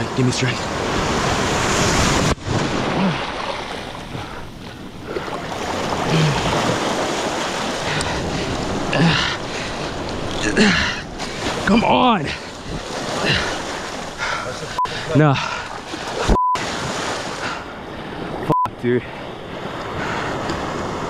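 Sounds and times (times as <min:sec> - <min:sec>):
surf washing in: 0:00.0 - 0:21.0
man grunting with effort: 0:06.0 - 0:06.6, 0:08.9 - 0:09.4, 0:10.4 - 0:11.0.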